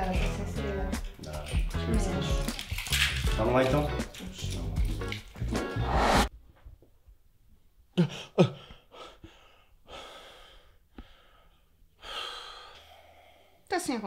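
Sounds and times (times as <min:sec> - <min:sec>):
breathy sighs: 0:08.6 - 0:13.6.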